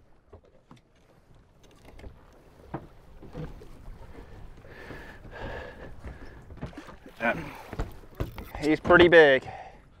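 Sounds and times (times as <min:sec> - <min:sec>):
water lapping against a hull: 0:00.0 - 0:10.0.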